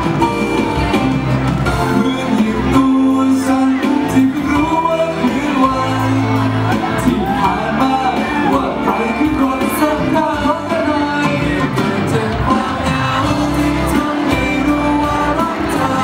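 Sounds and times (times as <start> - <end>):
instrumental backing music: 0.0 - 16.0
man singing a pop song: 0.0 - 16.0.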